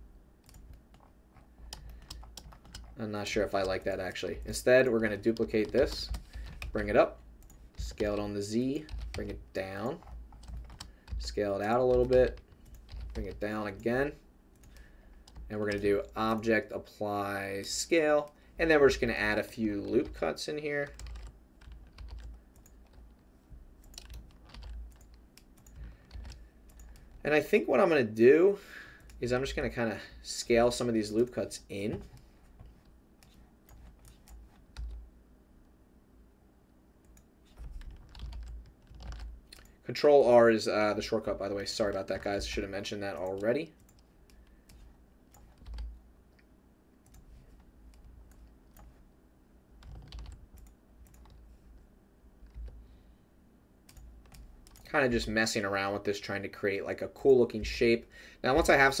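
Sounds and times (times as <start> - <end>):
keyboard typing clicks: 0.4 - 3.0, 23.8 - 27.2, 37.0 - 39.7, 43.2 - 45.9, 49.8 - 51.4, 53.9 - 54.9.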